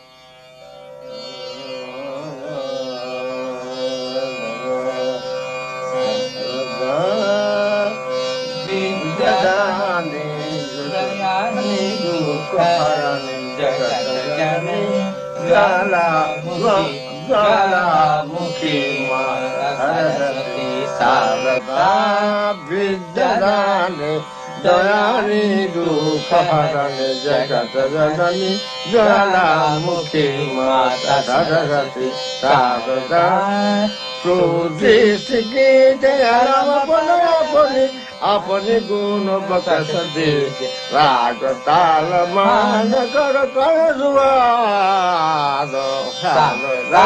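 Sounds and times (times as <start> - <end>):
sliding melody over a drone: 8.6 - 27.4, 36.6 - 47.0.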